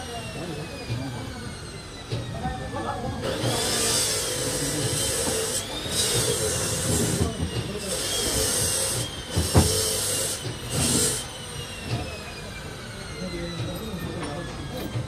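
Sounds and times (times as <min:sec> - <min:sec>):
bursts of hissing: 0:07.8 - 0:11.3.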